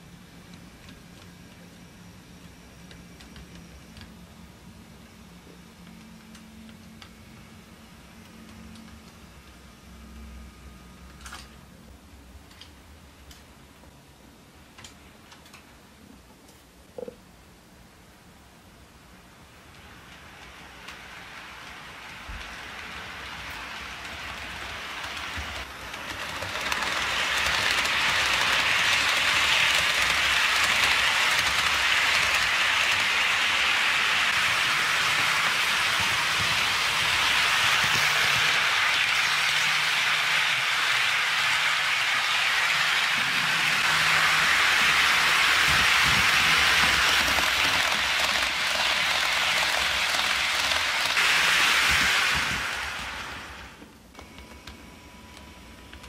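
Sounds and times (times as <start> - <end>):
model train wheels hissing on rails: 19.2 - 54.0.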